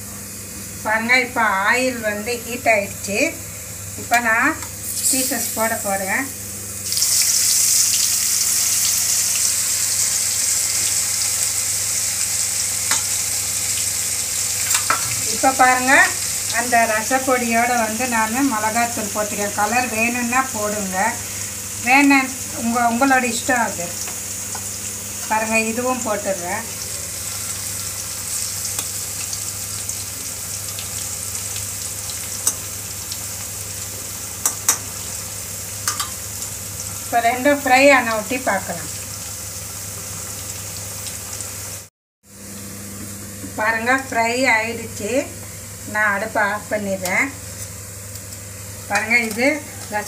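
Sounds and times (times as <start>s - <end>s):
fish sizzling in hot oil: 3.0s - 42.7s.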